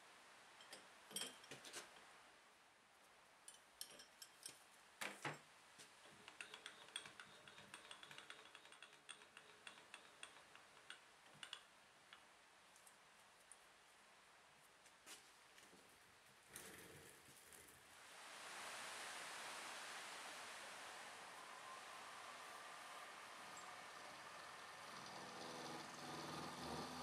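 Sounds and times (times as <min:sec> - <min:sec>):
faint metallic clicks and taps: 0:03.4 - 0:13.7.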